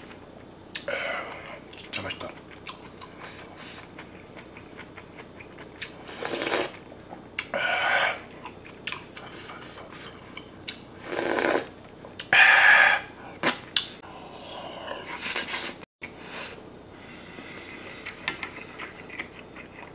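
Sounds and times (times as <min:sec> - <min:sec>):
wet chewing: 0:00.7 - 0:06.0, 0:18.0 - 0:19.9
person slurping broth: 0:06.0 - 0:06.8, 0:11.0 - 0:11.7.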